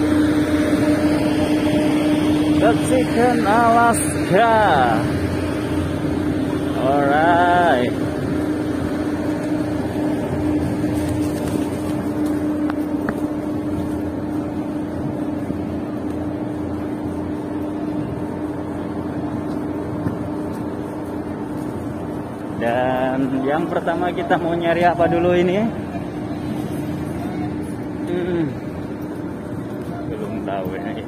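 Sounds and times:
engine drone: 0.0s - 31.0s.

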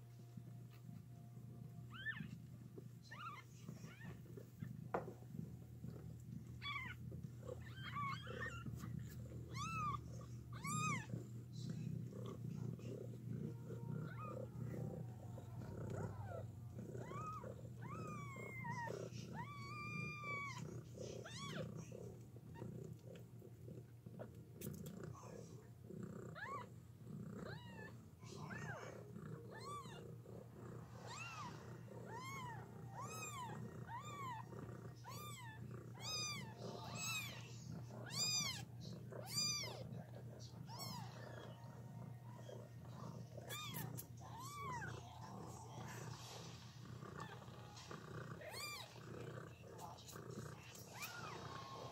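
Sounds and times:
low purr: 0.0s - 51.9s
kittens mewing: 6.4s - 23.3s, 26.3s - 26.8s, 27.4s - 41.7s, 42.3s - 51.9s.

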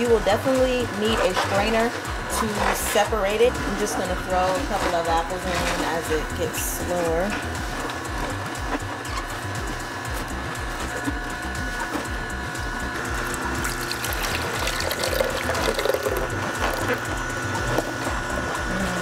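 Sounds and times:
juicer running: 0.0s - 19.0s
juice streaming into container: 10.6s - 18.8s.

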